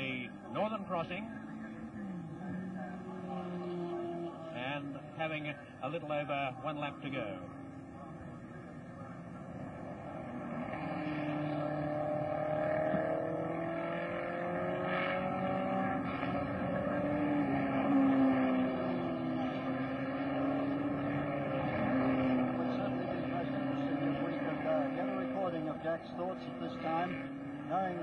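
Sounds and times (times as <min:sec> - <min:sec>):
racing car engine running hard: 0:00.0 - 0:28.0.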